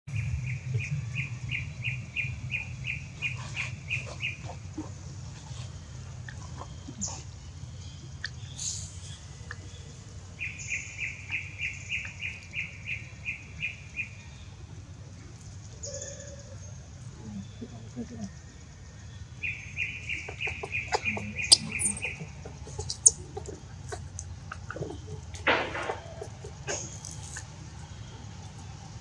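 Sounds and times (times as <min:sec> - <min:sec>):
steady low rumble: 0:00.1 - 0:15.8
higher bird chirps: 0:19.2 - 0:28.4.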